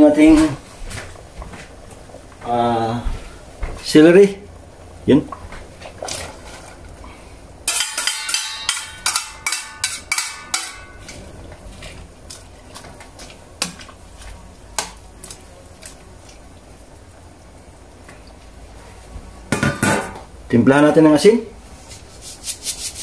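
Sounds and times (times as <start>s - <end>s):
ladle scraping metal pot: 7.7s - 12.0s.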